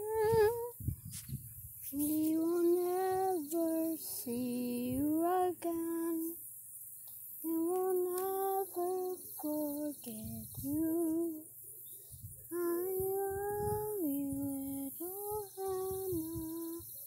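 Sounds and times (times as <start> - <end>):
girl singing wordless tune: 0.0 - 1.0, 1.9 - 6.4, 7.4 - 11.6, 12.5 - 17.0.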